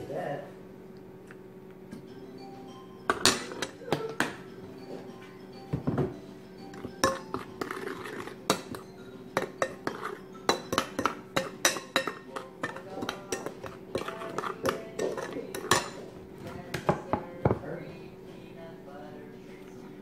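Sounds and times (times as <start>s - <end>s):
metal spoon clinking in ceramic bowl: 6.7s - 16.0s.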